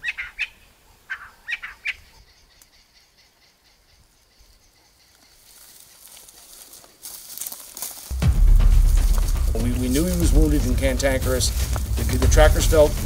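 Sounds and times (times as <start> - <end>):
bird chirping: 0.0 - 6.6
high crackly rustle: 5.2 - 13.0.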